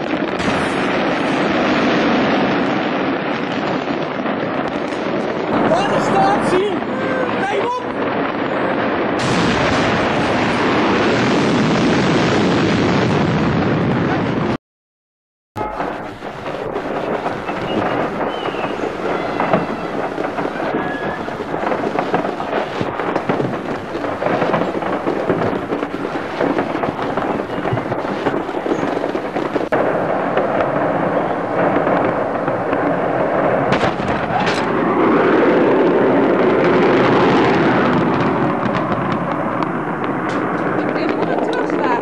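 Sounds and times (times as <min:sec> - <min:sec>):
fireworks crackling and rumbling: 0:00.0 - 0:14.6, 0:15.6 - 0:42.0.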